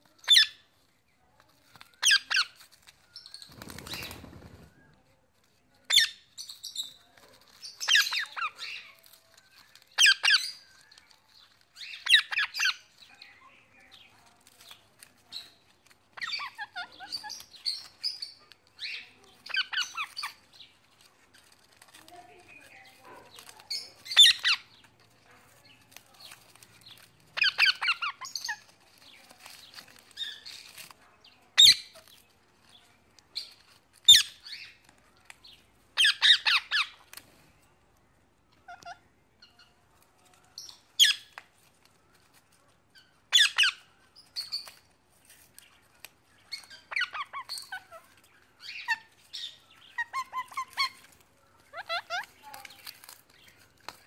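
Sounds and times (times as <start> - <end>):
parrots squawking: 7.8 - 8.9, 10.0 - 10.6, 11.8 - 12.9, 16.1 - 18.0, 18.8 - 20.5, 23.7 - 24.9, 27.4 - 28.7, 36.0 - 37.1, 38.5 - 39.0, 43.3 - 43.9, 46.5 - 53.1.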